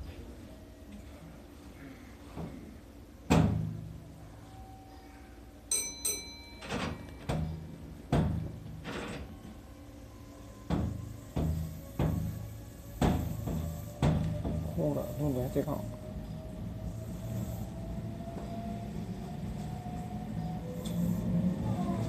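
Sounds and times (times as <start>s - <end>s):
electric train pulling away: 2.8s - 22.0s
wheels clunking over rail joints: 10.6s - 15.0s.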